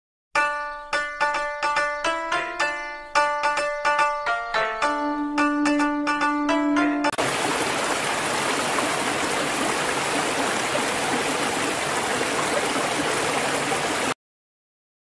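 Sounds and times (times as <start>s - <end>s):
stream rushing over rocks: 7.2s - 14.2s.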